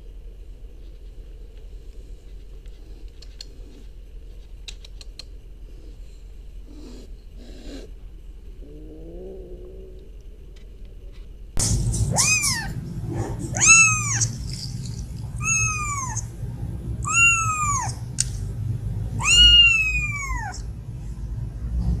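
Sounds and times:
steady low rumble: 0.0s - 22.0s
kitten meowing: 12.1s - 12.8s, 13.5s - 14.5s, 15.3s - 16.3s, 17.0s - 18.1s, 19.2s - 20.7s.

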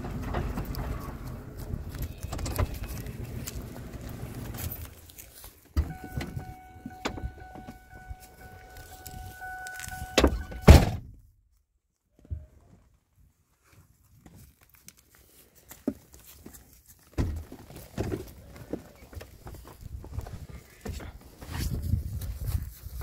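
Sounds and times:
pickup truck rumbling: 0.0s - 5.1s, 5.8s - 11.0s
loud thumps: 10.0s - 11.2s.

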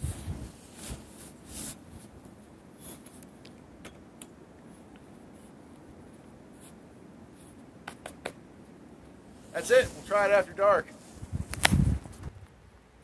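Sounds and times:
flagpole scraping: 9.4s - 12.3s.

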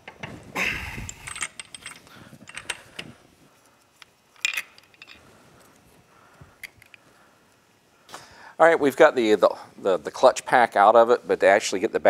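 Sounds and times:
metal tools clattering: 1.0s - 3.1s, 4.4s - 5.3s.

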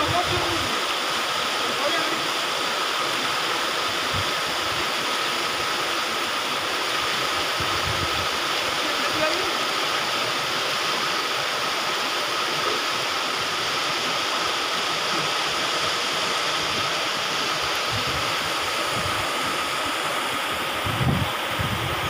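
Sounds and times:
wind buffeting microphone: 0.0s - 0.8s, 7.5s - 8.4s, 17.8s - 19.6s, 20.6s - 22.0s
floodwater rushing: 0.0s - 22.0s.

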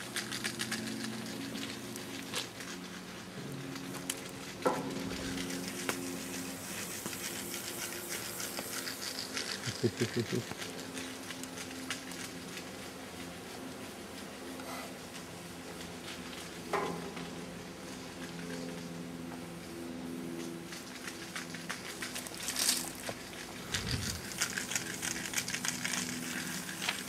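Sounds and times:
steady low hum: 0.0s - 27.0s
footsteps on gravel: 22.0s - 27.0s.

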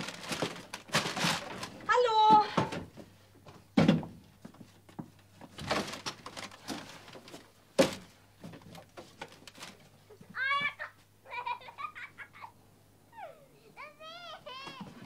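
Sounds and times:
wooden chair knocks and thumps: 3.8s - 4.2s.

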